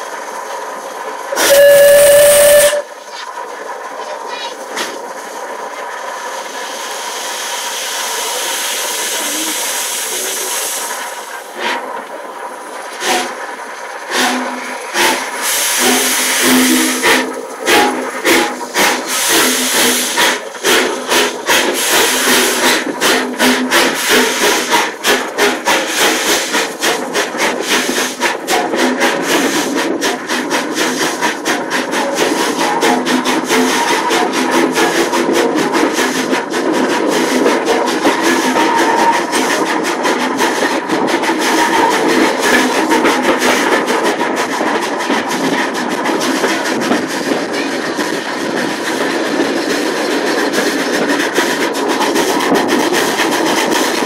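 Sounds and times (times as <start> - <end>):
locomotive exhaust beats: 0.0 - 54.0
steam hissing: 0.0 - 54.0
steam locomotive whistle: 1.3 - 2.9, 13.0 - 13.4, 14.1 - 24.9, 37.7 - 39.5, 41.4 - 42.2.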